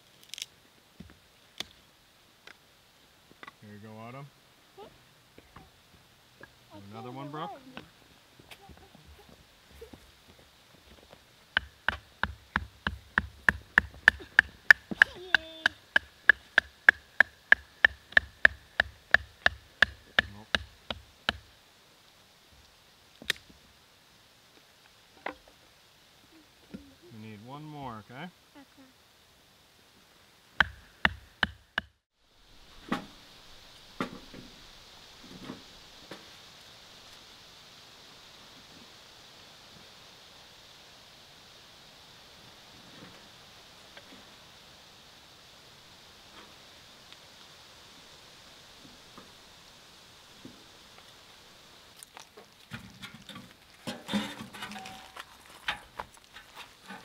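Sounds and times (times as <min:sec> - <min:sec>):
child's voice: 0:04.8 - 0:05.0, 0:06.7 - 0:07.9, 0:08.5 - 0:10.0, 0:14.9 - 0:15.8, 0:26.3 - 0:27.1, 0:28.5 - 0:29.0
stick knocking on hatchet head: 0:11.6 - 0:20.7, 0:30.6 - 0:31.9.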